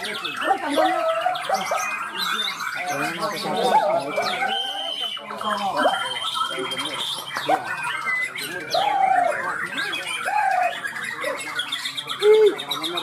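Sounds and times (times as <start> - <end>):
caged songbirds singing: 0.0 - 13.0
low arching bird whistles: 3.9 - 5.4.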